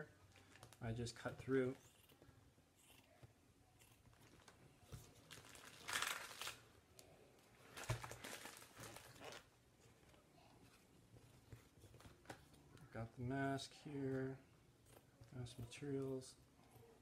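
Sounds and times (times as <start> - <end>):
filter material crinkling and rustling: 0.1 - 2.4, 4.0 - 13.1
scissors cutting: 1.8 - 3.2.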